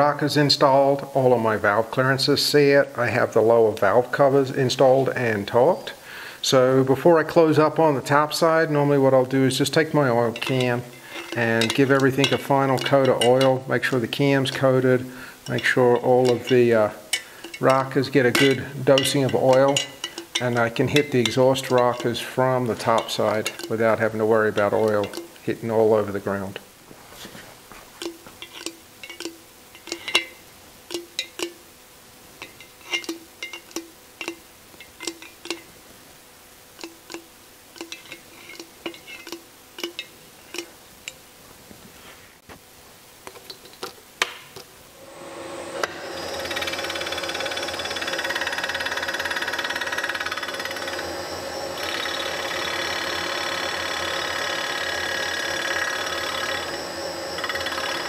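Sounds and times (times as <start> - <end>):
milling machine cutting metal: 8.1 - 26.2, 28.0 - 31.5, 45.0 - 58.0
oil can pump clicks: 9.7 - 25.5, 28.0 - 31.6, 32.4 - 35.7, 36.8 - 41.2.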